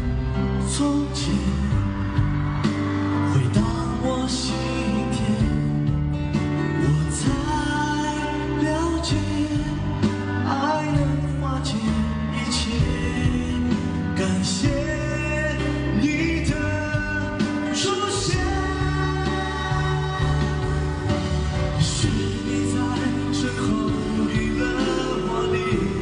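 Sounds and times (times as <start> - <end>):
instrumental backing: 0.0 - 26.0
man singing pop song: 0.0 - 26.0.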